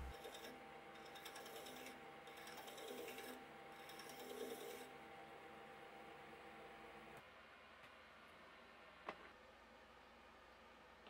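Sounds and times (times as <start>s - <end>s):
hand file rasping on metal: 0.0s - 4.9s.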